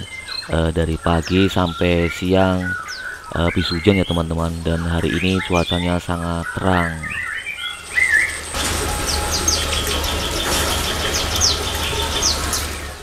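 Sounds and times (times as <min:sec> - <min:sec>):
small birds chirping: 0:00.0 - 0:13.0
steady hiss: 0:00.0 - 0:13.0
low hum: 0:07.7 - 0:13.0.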